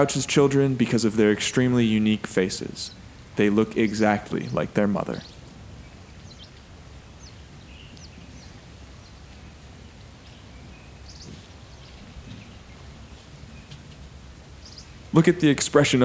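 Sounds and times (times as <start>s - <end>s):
low background rumble: 0.0s - 16.0s
faint bird chirps: 2.6s - 15.2s.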